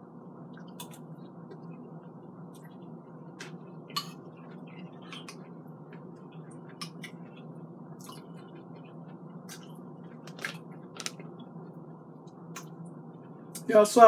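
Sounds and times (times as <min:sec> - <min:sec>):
low hum: 0:00.0 - 0:14.0
person chewing: 0:03.4 - 0:11.5.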